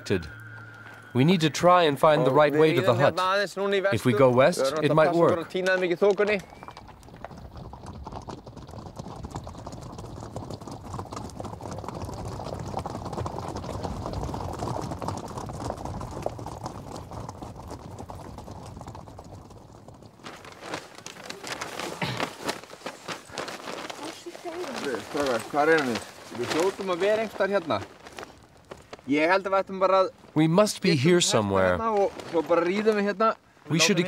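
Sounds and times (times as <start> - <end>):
horse hoofbeats on stony ground: 3.9 - 33.1
scattered crackles and knocks: 4.2 - 30.7.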